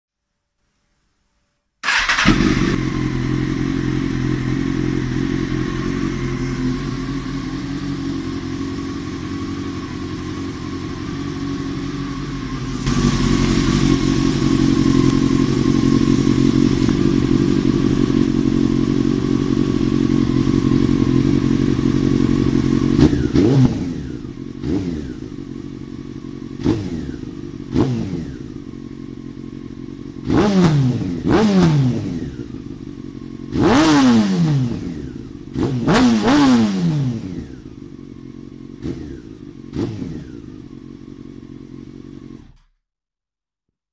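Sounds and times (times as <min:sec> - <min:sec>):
engine throttle blips: 0:01.8 - 0:25.4
motorcycle engine idling: 0:01.8 - 0:42.8.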